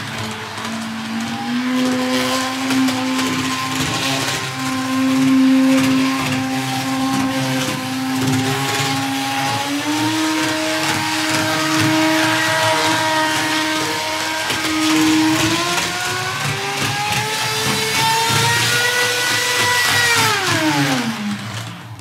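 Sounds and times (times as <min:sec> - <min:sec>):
model train motor whining: 0:00.0 - 0:22.0
rattly rushing noise: 0:00.0 - 0:22.0.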